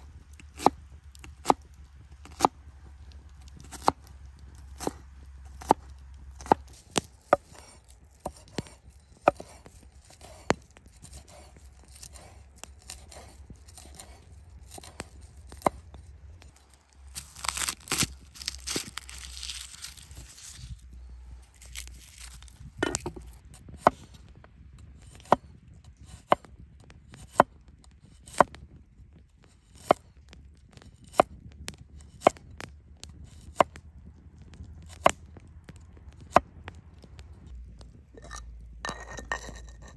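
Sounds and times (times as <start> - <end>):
knife chopping on wooden board: 2.2 - 2.5, 3.6 - 4.0, 4.7 - 5.8, 6.4 - 15.8, 22.8 - 24.0, 25.2 - 25.4
garlic skin crackling rustle: 16.4 - 23.4.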